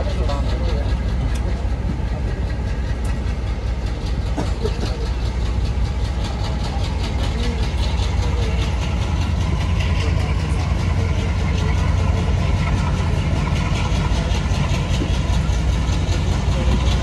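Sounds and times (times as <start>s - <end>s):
diesel locomotive chugging: 0.0s - 17.0s.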